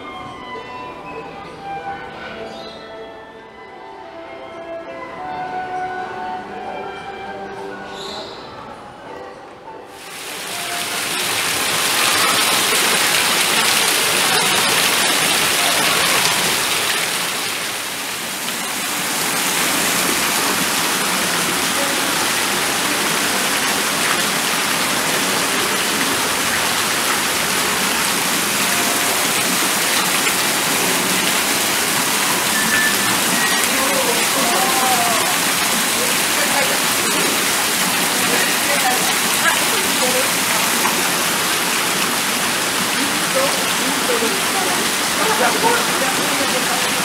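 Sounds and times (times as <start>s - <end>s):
rushing water: 9.9s - 47.0s.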